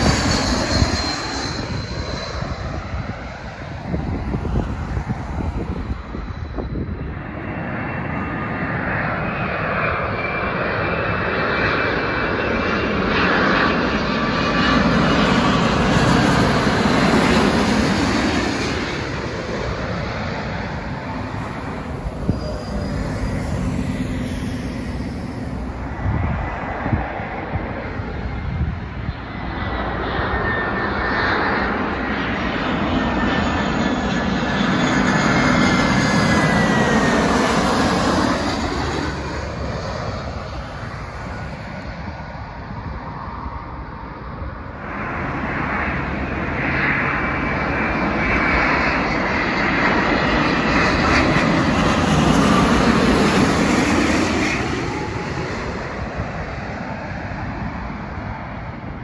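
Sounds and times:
jet airliner engines whining: 0.0s - 59.0s.

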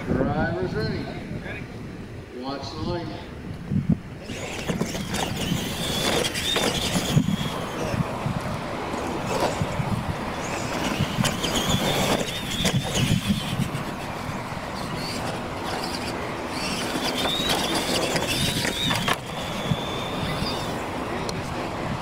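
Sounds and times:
electric motors whining: 4.1s - 22.0s
toy trucks landing knocks: 4.3s - 7.8s, 14.9s - 20.7s.

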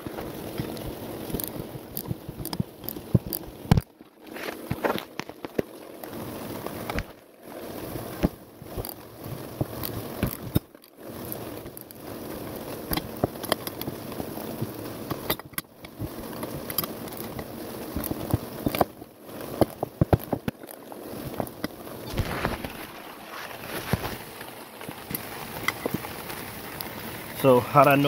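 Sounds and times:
rain hissing: 0.0s - 28.0s
metallic clicks and scrapes of tools: 9.8s - 11.8s, 15.1s - 17.4s.

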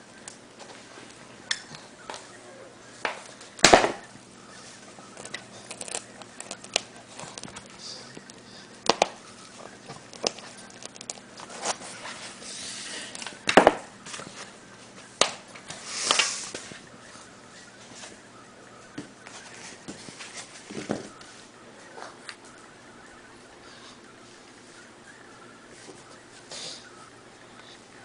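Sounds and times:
hissing rustle: 15.6s - 22.7s.

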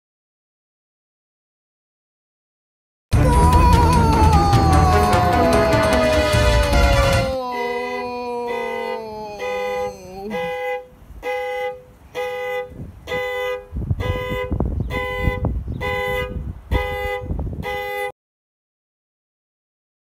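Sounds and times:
two-tone car horn honking: 5.2s - 18.1s.

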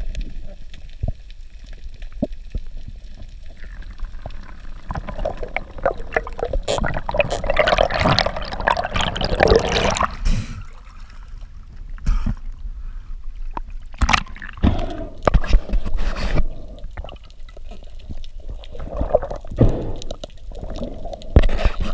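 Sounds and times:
water sloshing and bubbling: 0.0s - 21.9s.

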